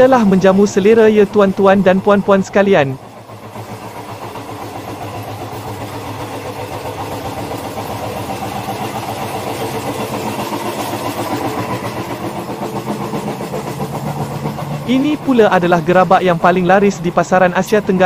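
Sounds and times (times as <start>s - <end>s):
train rumble with low hum: 0.0s - 18.0s.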